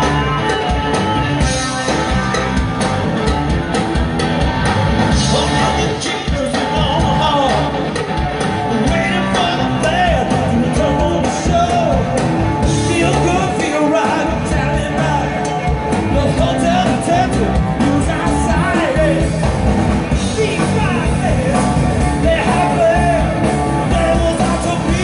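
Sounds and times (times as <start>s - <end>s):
live rock band: 0.0s - 25.0s
person singing: 5.1s - 8.0s, 8.7s - 19.5s, 20.1s - 25.0s.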